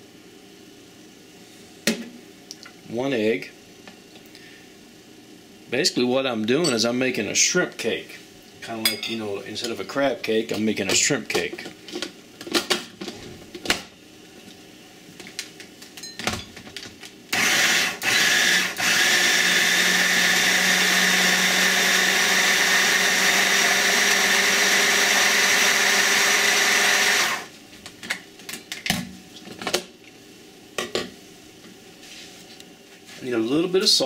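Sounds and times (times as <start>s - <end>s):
hand blender whirring: 17.3s - 27.5s.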